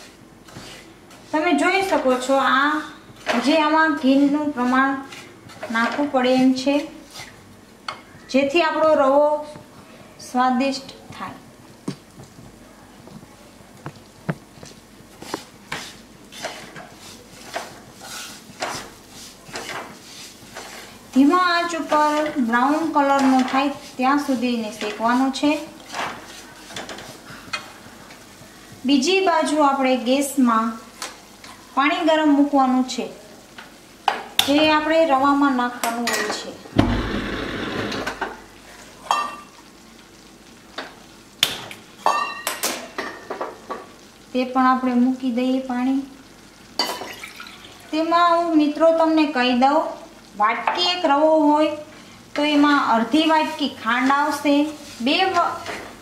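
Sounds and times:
wooden spatula scraping a pan: 0.0s - 7.4s, 15.1s - 27.8s, 52.4s - 56.0s
faint sizzling: 0.0s - 56.0s.

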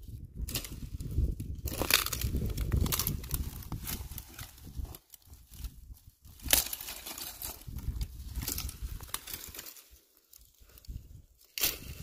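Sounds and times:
dry sticks crackling and crunching: 0.1s - 12.0s.

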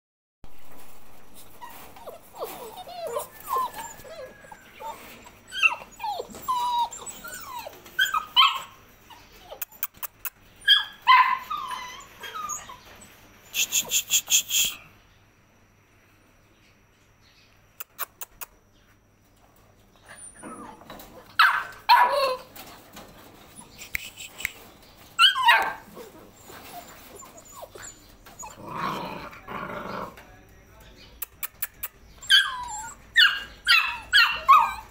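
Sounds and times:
puppies whining and yipping: 0.7s - 13.4s, 19.9s - 29.1s, 31.7s - 34.9s.

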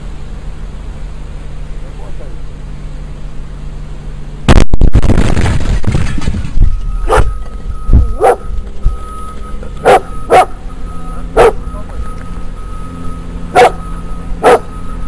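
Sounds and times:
loud bang with rumble: 4.5s - 9.1s
dog barking: 7.0s - 7.4s, 8.1s - 8.5s, 9.8s - 10.6s, 11.4s - 11.7s, 13.5s - 13.8s, 14.4s - 14.7s.

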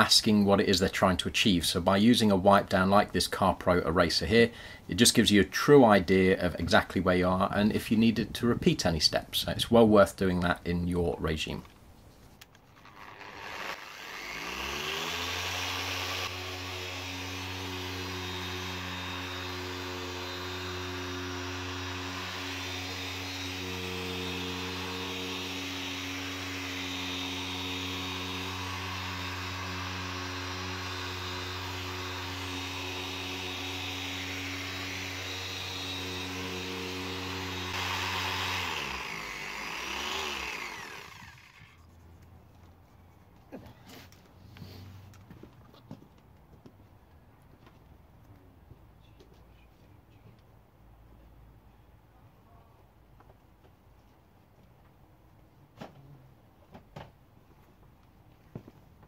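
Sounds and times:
rotary polisher motor running: 12.8s - 41.8s.

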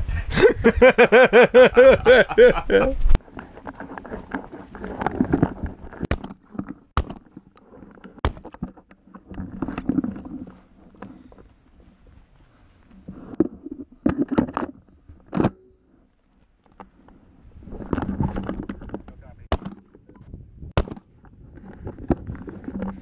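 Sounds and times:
rustling and rubbing: 2.6s - 15.1s, 16.0s - 19.4s, 21.3s - 23.0s.

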